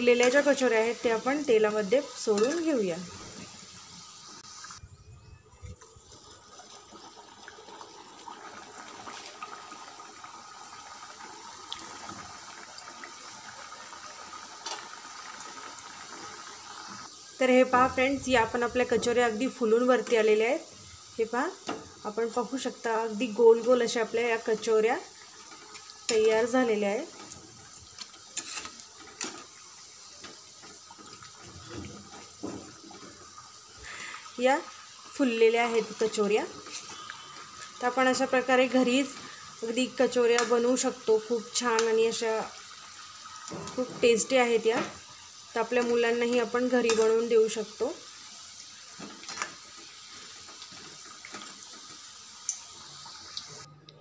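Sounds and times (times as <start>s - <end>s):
oil sizzling and bubbling: 0.0s - 54.0s
metal spoon clicking on pan: 46.9s - 47.1s.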